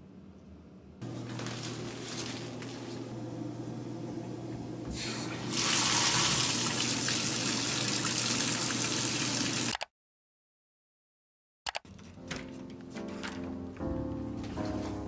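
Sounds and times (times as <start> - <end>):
running water hiss: 4.9 - 9.7.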